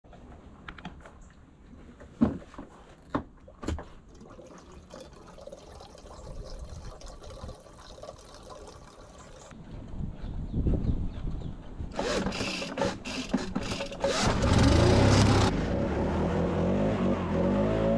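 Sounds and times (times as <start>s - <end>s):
fuel pouring into tank: 4.0s - 9.6s.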